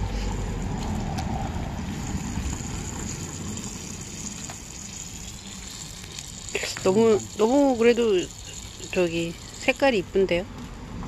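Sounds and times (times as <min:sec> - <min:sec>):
hot oil sizzling: 0:01.7 - 0:10.3.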